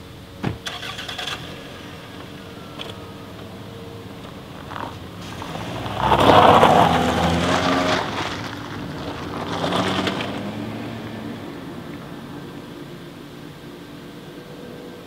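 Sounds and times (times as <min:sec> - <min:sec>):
car engine running: 0:00.0 - 0:15.0
tyres on gravel: 0:00.2 - 0:14.9.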